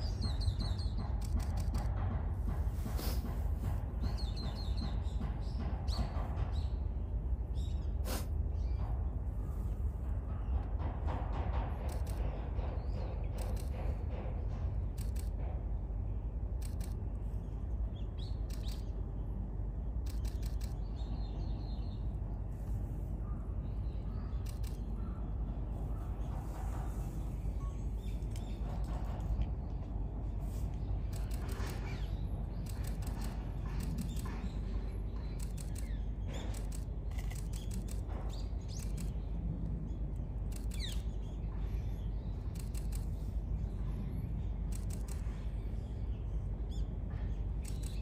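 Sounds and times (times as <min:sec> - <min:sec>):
bird chirps: 0:00.0 - 0:01.7, 0:17.9 - 0:19.0, 0:30.8 - 0:48.0
outdoor rumble: 0:00.0 - 0:48.0
short clicks: 0:18.4 - 0:19.0, 0:20.0 - 0:21.1, 0:24.3 - 0:25.0, 0:35.3 - 0:39.2, 0:42.5 - 0:43.2, 0:47.6 - 0:48.0
camera shutters clicking: 0:20.1 - 0:20.8, 0:44.7 - 0:45.2, 0:47.6 - 0:48.0.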